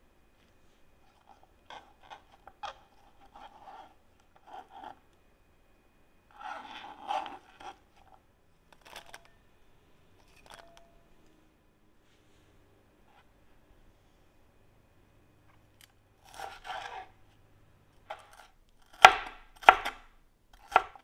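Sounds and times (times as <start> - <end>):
knife cutting cucumber on board: 18.1 - 21.0.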